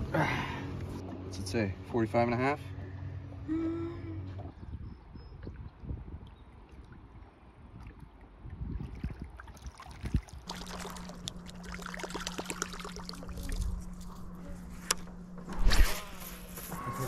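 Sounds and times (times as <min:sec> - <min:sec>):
electric trolling motor humming: 0:10.4 - 0:17.0.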